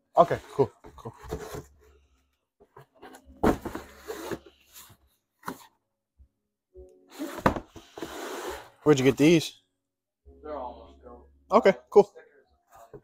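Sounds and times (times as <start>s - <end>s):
cardboard boxes scraping and bumping: 2.9s - 5.7s.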